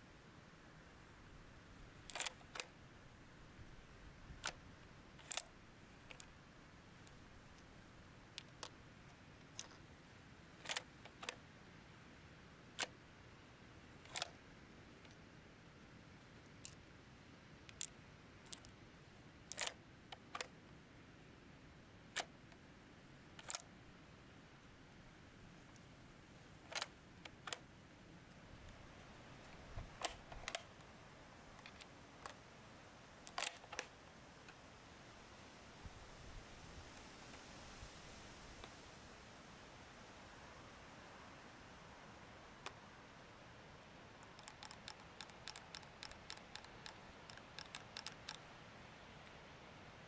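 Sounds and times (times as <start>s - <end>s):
sharp mechanical clicks: 2.0s - 2.7s, 4.4s - 4.6s, 5.2s - 6.3s, 10.6s - 11.4s, 12.8s - 13.0s, 14.0s - 14.4s, 17.7s - 18.8s, 19.5s - 20.5s, 23.4s - 23.7s, 26.6s - 27.7s, 29.5s - 30.8s, 33.2s - 33.9s, 44.2s - 48.5s.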